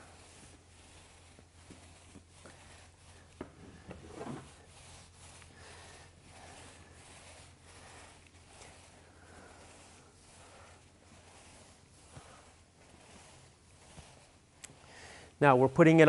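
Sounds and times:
paint roller rubbing on concrete: 0:00.0 - 0:16.0.

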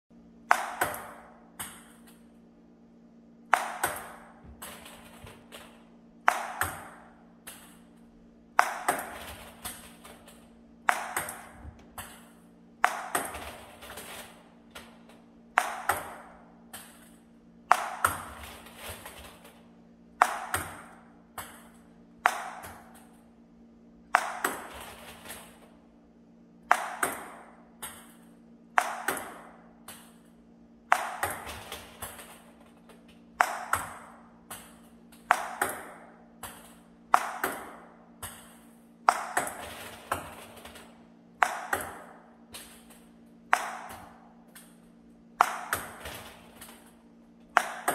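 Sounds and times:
table tennis ball hits: 0:00.4 - 0:02.3, 0:03.5 - 0:19.6, 0:20.2 - 0:23.2, 0:24.1 - 0:25.6, 0:26.6 - 0:47.9
ball bouncing: 0:00.5 - 0:02.2, 0:03.5 - 0:07.8, 0:08.6 - 0:19.6, 0:20.2 - 0:23.2, 0:24.1 - 0:25.4, 0:26.7 - 0:30.3, 0:30.9 - 0:44.8, 0:45.4 - 0:46.9, 0:47.5 - 0:47.9.

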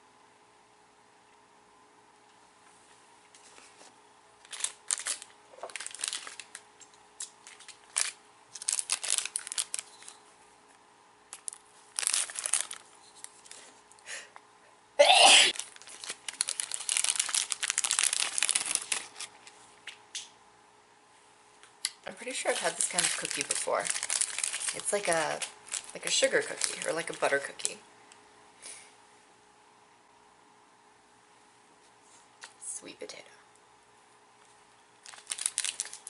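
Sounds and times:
wrapper tearing open: 0:04.4 - 0:06.6, 0:07.2 - 0:10.2, 0:11.3 - 0:13.6, 0:15.5 - 0:19.4, 0:22.5 - 0:27.2, 0:35.0 - 0:36.0
plastic wrapper crinkling: 0:04.4 - 0:10.2, 0:11.3 - 0:13.7, 0:15.5 - 0:20.0, 0:22.2 - 0:27.7, 0:35.0 - 0:36.0.

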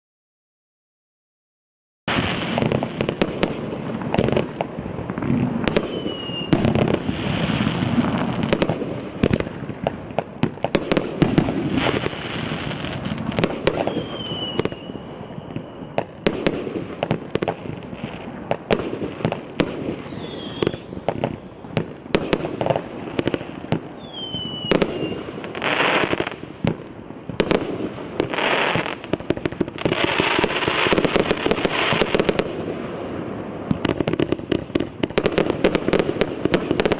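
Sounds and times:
fireworks shots popping and bursting: 0:02.1 - 0:36.9
firework whistles: 0:05.3 - 0:09.4, 0:10.8 - 0:17.2, 0:17.8 - 0:26.4, 0:29.7 - 0:32.7.

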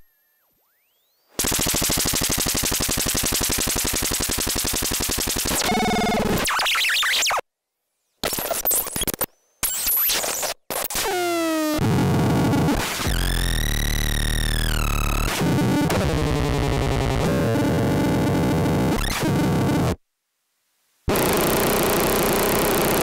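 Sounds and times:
harsh glitchy electronic noise: 0:12.2 - 0:20.0.

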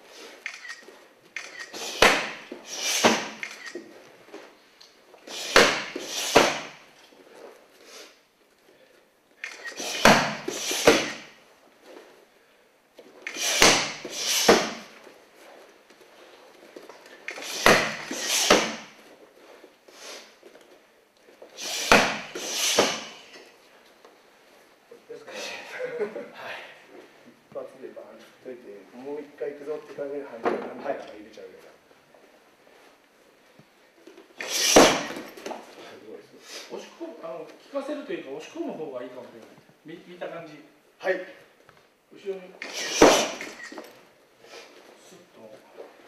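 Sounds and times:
kicks smacking a foam shield: 0:02.0 - 0:03.4, 0:05.5 - 0:06.8, 0:10.0 - 0:11.3, 0:13.5 - 0:14.9, 0:17.6 - 0:19.0, 0:21.8 - 0:23.2, 0:34.7 - 0:35.3.

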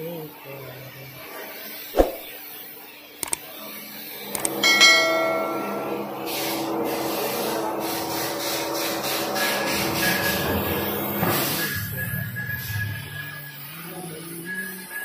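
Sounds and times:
crane motor humming and rubbing: 0:04.1 - 0:13.4
click and bell chime: 0:04.4 - 0:06.1.

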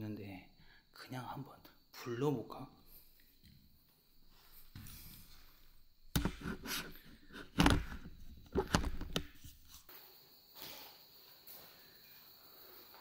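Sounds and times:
sharp knocks and thumps: 0:06.1 - 0:09.6.

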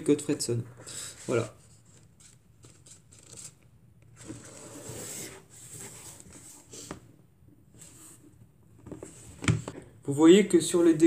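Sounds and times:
book pages rustling: 0:01.2 - 0:07.0.

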